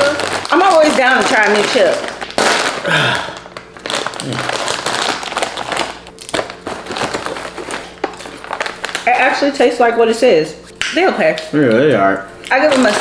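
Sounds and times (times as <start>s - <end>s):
chips rattling in bag: 0.0s - 9.2s, 12.5s - 13.0s
foil chip bag crinkling: 0.0s - 9.6s, 11.3s - 13.0s.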